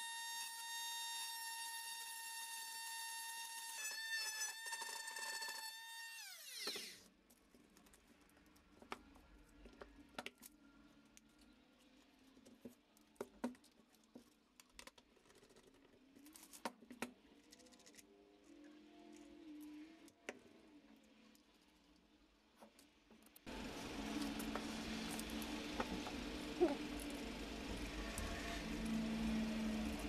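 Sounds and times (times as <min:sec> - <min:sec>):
power tool motor whining: 0:00.0 - 0:07.0.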